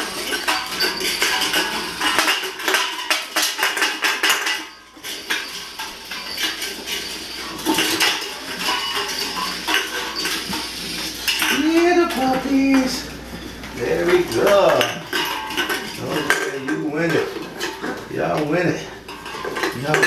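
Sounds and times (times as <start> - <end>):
metal can clanking on tile floor: 0.0 - 20.0.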